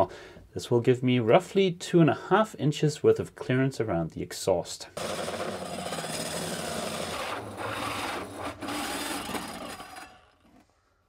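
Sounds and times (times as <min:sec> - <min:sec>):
hole saw cutting plywood: 0:05.0 - 0:10.6.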